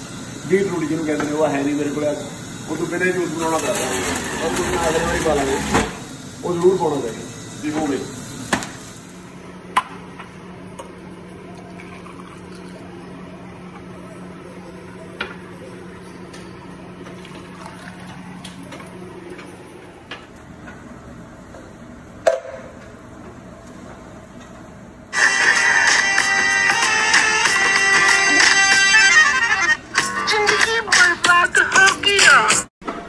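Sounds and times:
juicer motor hum: 0:00.0 - 0:09.6, 0:10.5 - 0:15.4
juice pouring: 0:11.5 - 0:13.0, 0:17.0 - 0:18.6.

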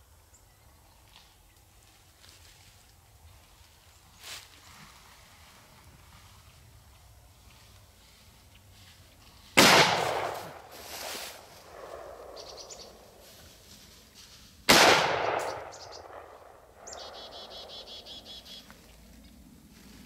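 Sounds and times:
gunshots with long echo: 0:09.6 - 0:10.8, 0:11.4 - 0:13.0, 0:14.7 - 0:18.0.

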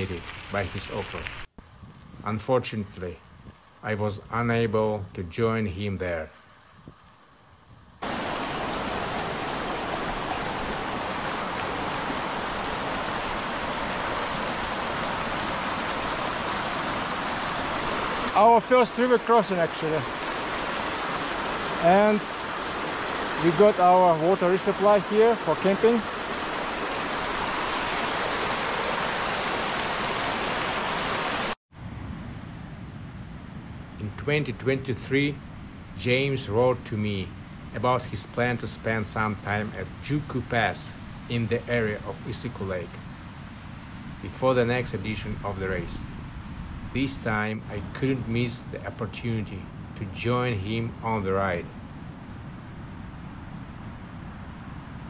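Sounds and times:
steady hiss: 0:00.0 - 0:31.6
stream rushing over rocks: 0:08.0 - 0:31.6.

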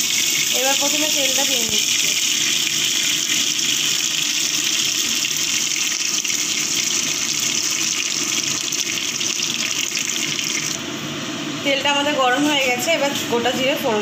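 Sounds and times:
oil sizzling in a pan: 0:00.0 - 0:10.8.

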